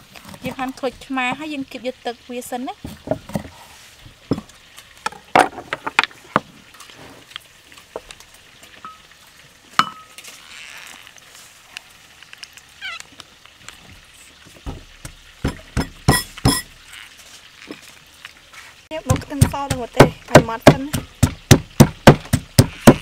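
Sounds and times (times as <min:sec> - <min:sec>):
plastic and ceramic knocking on wood: 0:05.1 - 0:06.5.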